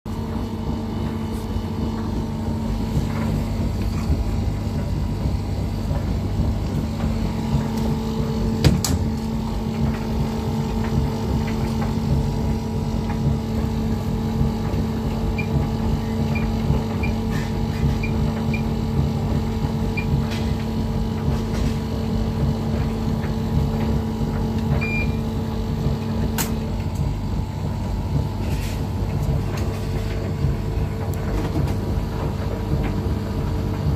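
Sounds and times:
washing machine hum: 0:00.0 - 0:33.9
washing machine door clicking shut: 0:08.5 - 0:09.3.

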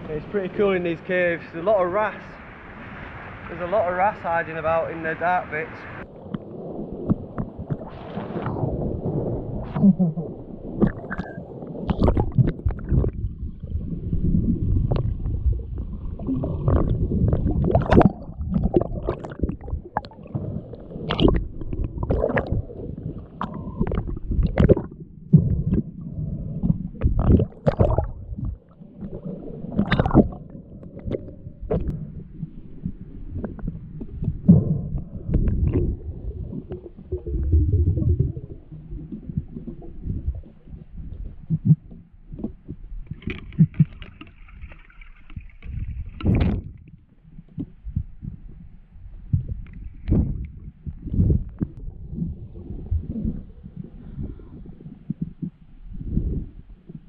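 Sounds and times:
underwater rumbling and gurgling: 0:05.9 - 0:57.0
sharp clicks and knocks: 0:41.5 - 0:46.8.

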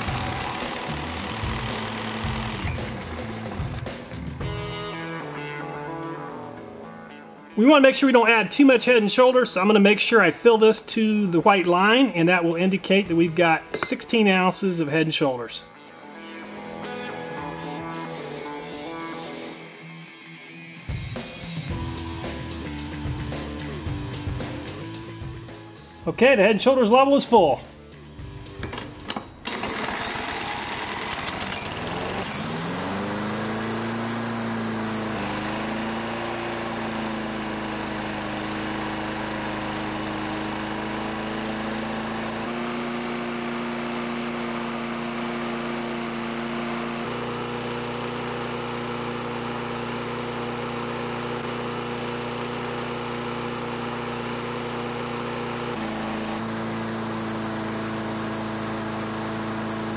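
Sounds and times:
lawn mower engine running: 0:00.0 - 0:04.6, 0:09.6 - 0:14.2, 0:21.7 - 0:59.9.

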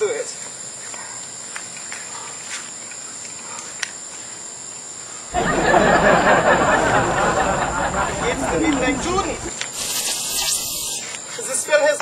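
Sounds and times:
crickets chirring: 0:00.0 - 0:12.0
loud rushing hiss: 0:06.3 - 0:11.1.

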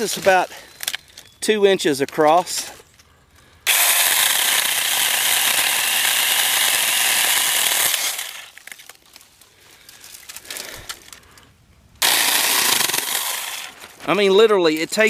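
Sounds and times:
chainsaw cutting branch: 0:03.7 - 0:08.8, 0:12.0 - 0:14.0
light clicks and crackles: 0:08.5 - 0:11.5.

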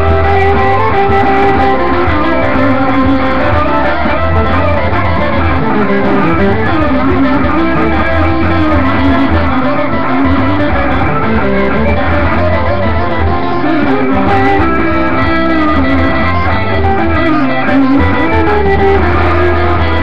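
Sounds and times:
electric guitar playing: 0:00.0 - 0:20.0
recorded band track: 0:00.0 - 0:20.0
steady bass line: 0:00.0 - 0:20.0.

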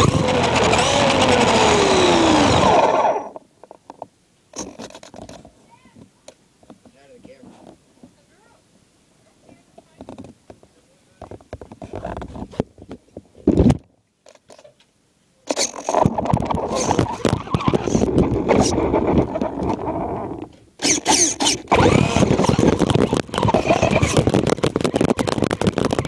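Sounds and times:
rc truck rattling over snow: 0:00.0 - 0:03.4, 0:15.5 - 0:26.0.

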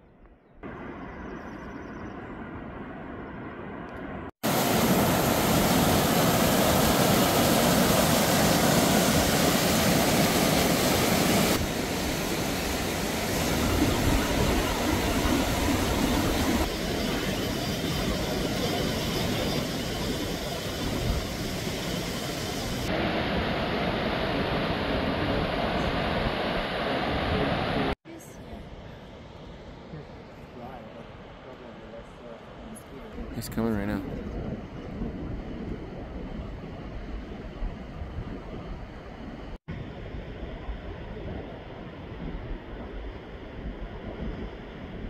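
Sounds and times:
river water roaring: 0:04.4 - 0:33.2.

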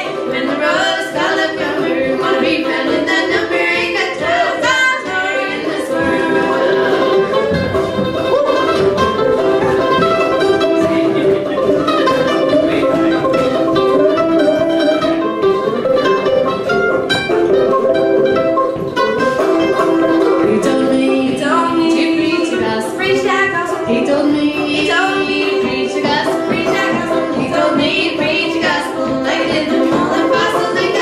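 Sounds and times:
voices singing together: 0:00.0 - 0:08.8, 0:20.5 - 0:31.0
mandolin and banjo picking: 0:00.0 - 0:31.0
string band playing: 0:00.0 - 0:31.0.

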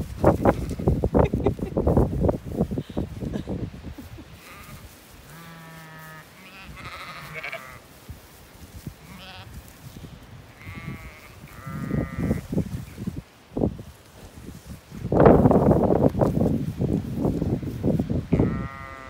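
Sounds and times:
low rustling noise: 0:00.0 - 0:18.9
sheep bleating: 0:04.4 - 0:07.8, 0:09.0 - 0:09.6, 0:10.6 - 0:12.5, 0:18.3 - 0:19.0.

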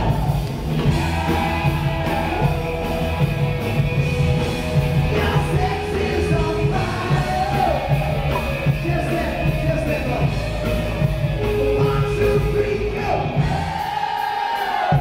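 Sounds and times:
loud music with a steady beat: 0:00.0 - 0:15.0
person singing: 0:05.0 - 0:13.8.

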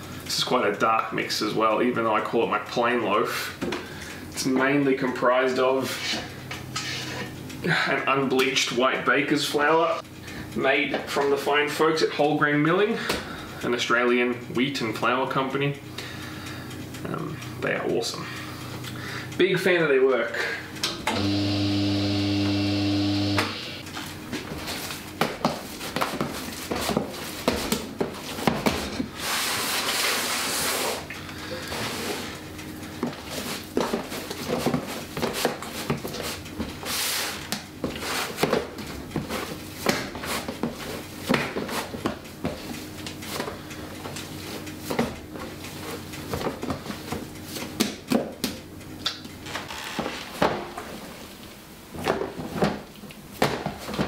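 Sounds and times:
faint background music: 0:04.2 - 0:16.0
steady hum: 0:20.6 - 0:25.8.

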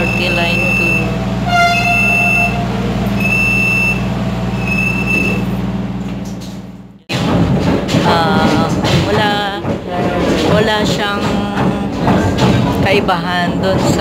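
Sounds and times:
high door warning beep: 0:00.0 - 0:05.5
train low hum: 0:00.0 - 0:07.1, 0:07.7 - 0:14.0.

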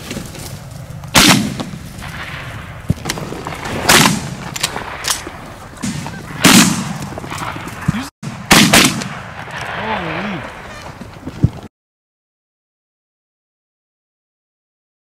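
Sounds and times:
shotgun blasts echoing: 0:01.1 - 0:10.8.

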